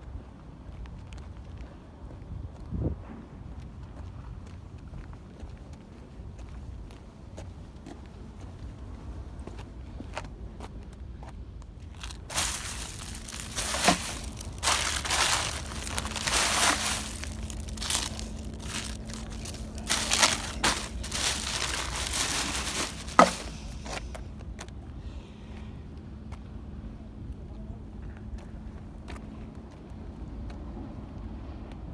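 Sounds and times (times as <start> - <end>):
plastic bag crinkling: 12.0 - 23.9.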